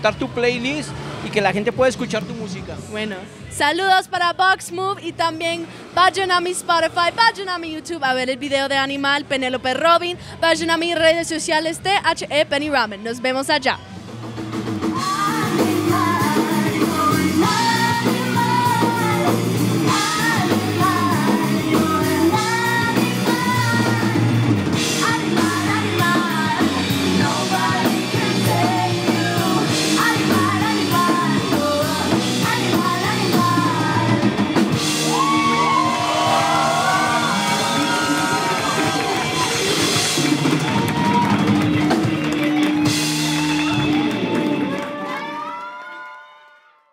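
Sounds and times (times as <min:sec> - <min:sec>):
drum kit: 0:14.0 - 0:44.7
electric guitars: 0:14.3 - 0:45.4
woman singing rock: 0:15.0 - 0:34.5.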